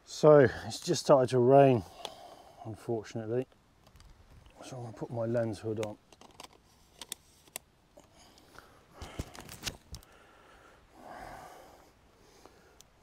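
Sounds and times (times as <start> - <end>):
camera gear clicks and knocks: 3.8 - 4.5, 5.8 - 7.6, 9.0 - 10.1.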